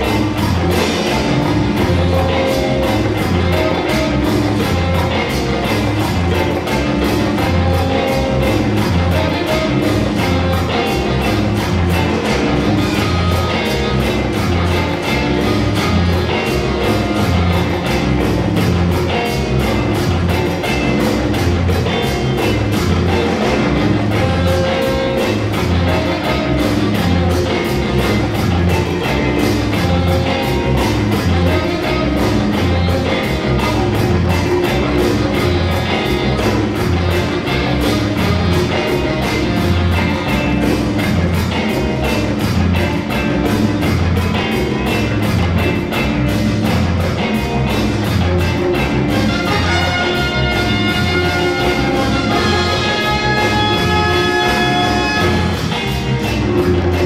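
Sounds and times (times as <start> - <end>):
horns: 0.0 - 44.0, 48.0 - 57.0
bass line: 0.0 - 57.0
drum kit beat: 0.0 - 57.0
guitar: 0.0 - 57.0.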